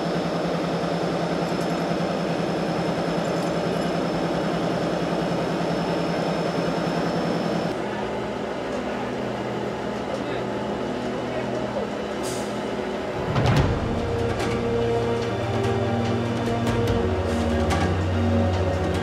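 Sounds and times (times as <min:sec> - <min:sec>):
engine idling: 0:00.0 - 0:08.2
diesel engine chugging: 0:00.0 - 0:19.0.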